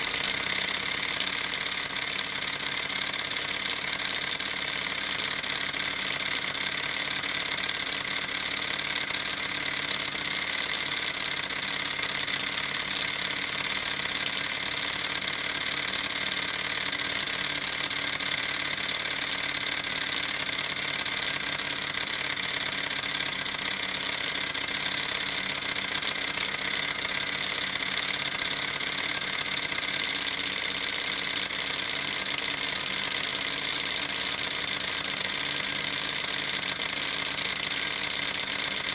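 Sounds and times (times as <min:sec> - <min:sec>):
model steam engine running: 0:00.0 - 0:38.9.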